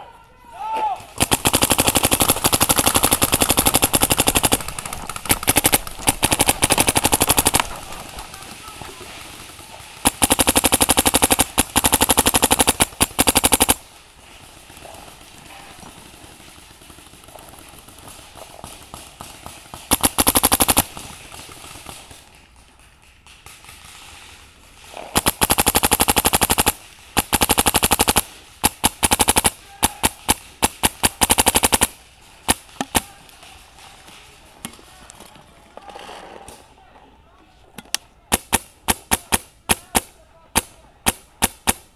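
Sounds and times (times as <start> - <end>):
paintball marker firing rapidly: 1.1 - 13.8, 14.5 - 22.3, 24.9 - 33.2, 38.3 - 41.9.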